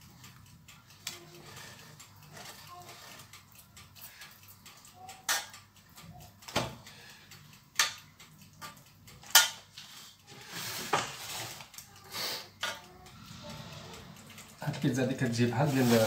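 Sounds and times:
metal spoon clinking on a pan: 0:05.2 - 0:05.6, 0:08.6 - 0:09.7
spoon scraping: 0:15.5 - 0:16.0.

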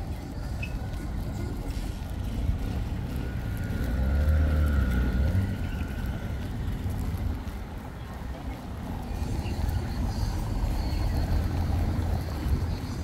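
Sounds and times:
motor engine passing by: 0:03.0 - 0:07.0.

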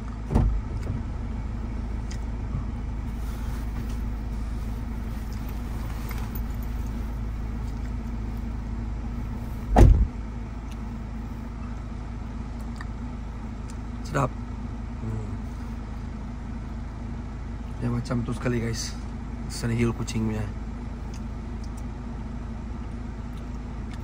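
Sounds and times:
car engine idling: 0:00.0 - 0:24.0
car door shutting: 0:00.2 - 0:01.0, 0:09.6 - 0:10.2.

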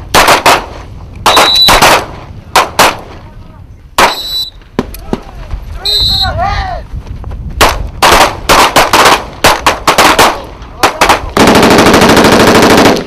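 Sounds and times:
single gunshots: 0:00.1 - 0:03.2, 0:04.0 - 0:04.3
automatic gunfire burst: 0:07.6 - 0:13.0.

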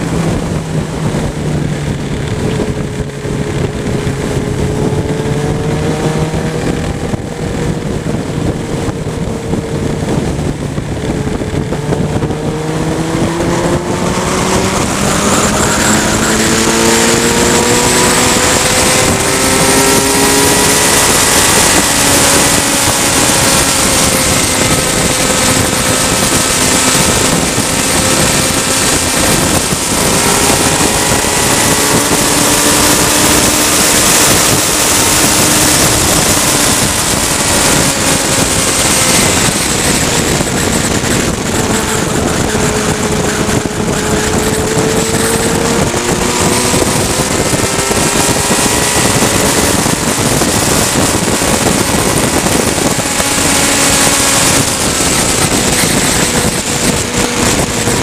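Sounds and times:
motorcycle engine running: 0:00.0 - 0:58.0
wind rushing over microphone: 0:00.0 - 0:58.0.

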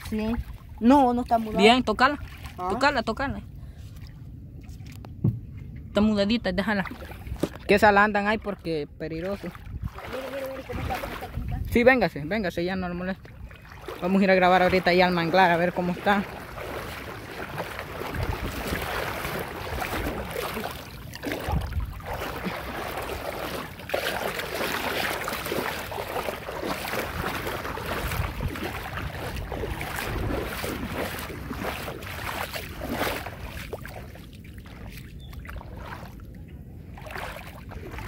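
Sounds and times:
water noise: 0:00.0 - 0:38.0
wind gusting on microphone: 0:09.4 - 0:23.8, 0:26.4 - 0:33.4.

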